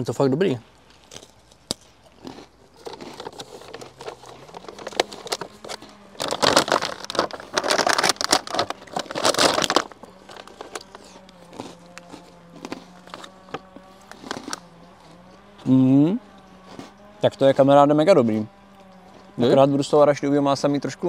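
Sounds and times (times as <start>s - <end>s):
plastic packaging crinkling: 1.0s - 14.6s
fly buzzing: 3.2s - 20.0s.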